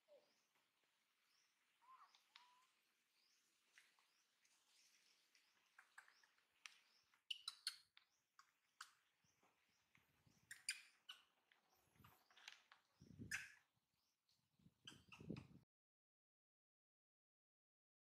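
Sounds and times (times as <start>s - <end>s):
high-pitched animal chirps and clicks: 1.9s - 2.7s, 5.7s - 9.0s, 10.4s - 11.3s, 14.9s - 15.6s.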